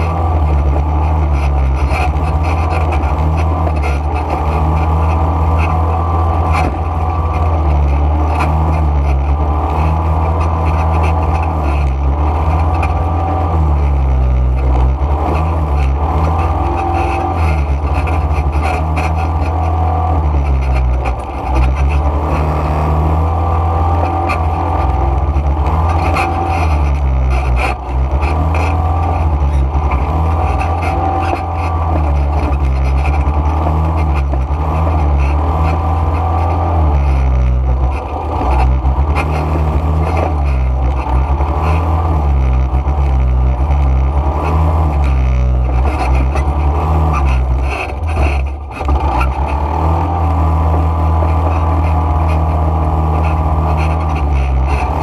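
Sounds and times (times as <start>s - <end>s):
quad bike engine revving: 0.0s - 55.0s.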